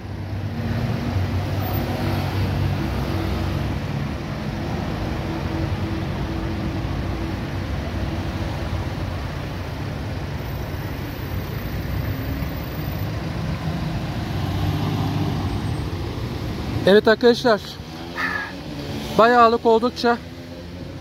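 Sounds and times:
cars driving past: 0.0s - 21.0s
constant traffic rush: 0.0s - 21.0s.

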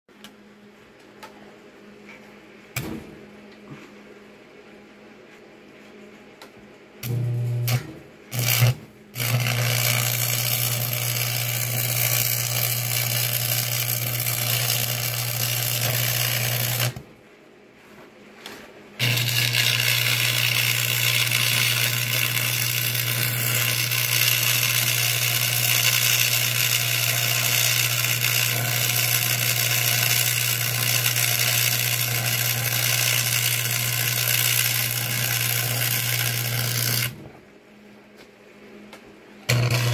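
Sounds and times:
welding arc crackle: 7.0s - 17.0s, 19.0s - 37.2s, 39.5s - 39.9s
welding arc strikes: 7.0s - 17.1s, 19.0s - 37.2s, 39.5s - 39.9s
low hum: 7.0s - 17.3s, 38.6s - 39.9s.

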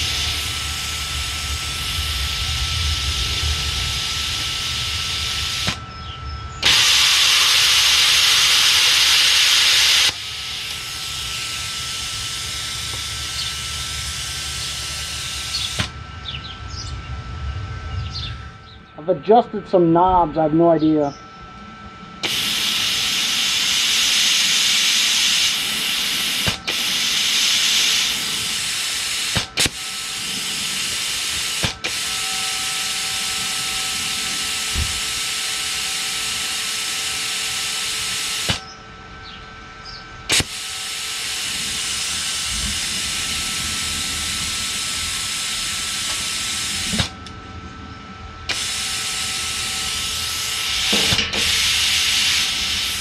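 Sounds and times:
compressed air hissing: 0.0s - 5.8s, 6.6s - 15.9s, 22.2s - 32.2s, 40.3s - 47.2s, 48.5s - 53.0s.

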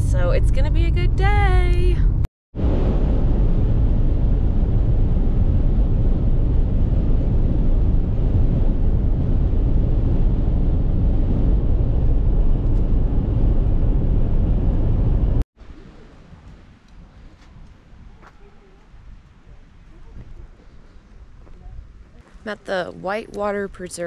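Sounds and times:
car interior road rumble: 0.0s - 2.3s, 3.1s - 15.4s.

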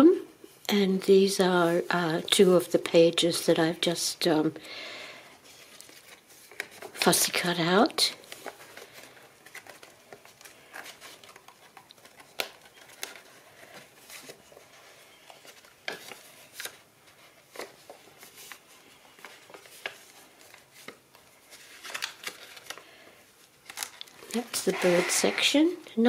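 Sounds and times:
paper pages rustling: 5.4s - 25.6s.

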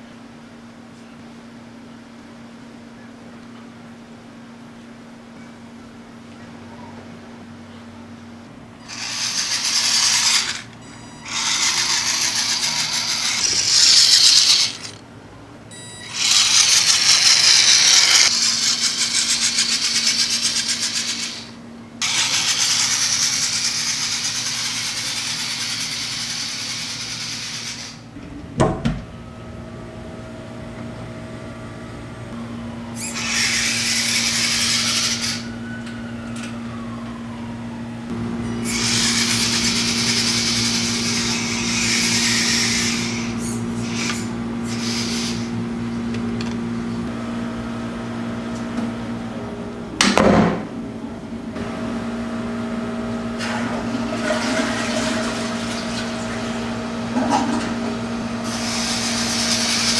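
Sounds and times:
rc car motor whining: 8.8s - 15.0s, 15.7s - 28.1s, 33.0s - 35.6s, 38.4s - 45.6s, 58.4s - 59.9s.

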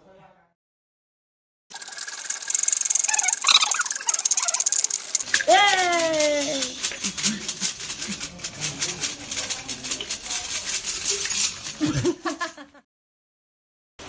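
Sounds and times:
small hard objects rattling: 1.7s - 11.8s.

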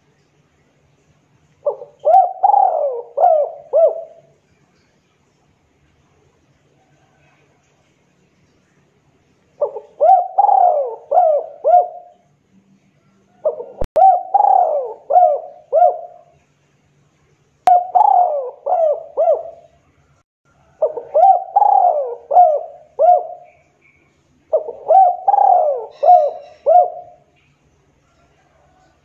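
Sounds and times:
dove cooing: 1.6s - 4.4s, 9.6s - 12.2s, 13.4s - 16.3s, 17.7s - 19.7s, 20.6s - 23.6s, 24.5s - 27.3s.

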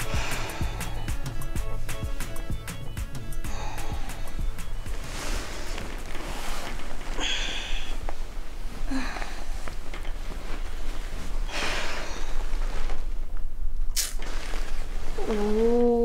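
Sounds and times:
woman breathing and sniffing: 0.0s - 1.3s, 3.4s - 13.2s.

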